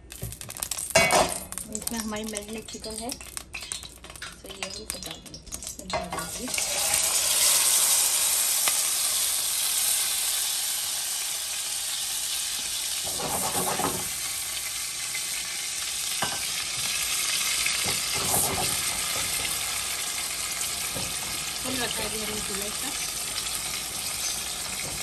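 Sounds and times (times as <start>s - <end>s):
chicken sizzling in hot oil: 0.0s - 25.0s
stirring in a pan: 13.0s - 14.2s.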